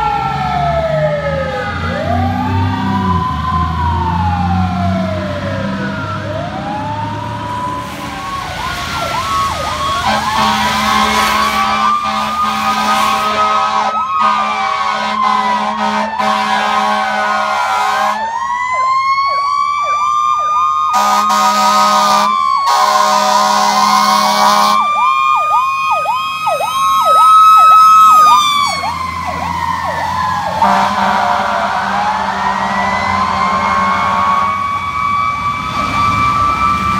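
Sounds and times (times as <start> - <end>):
siren wailing: 0.0 - 36.9
yelping siren: 0.0 - 36.9
loud low horn blasts: 10.0 - 18.2, 20.9 - 24.9, 30.6 - 34.6.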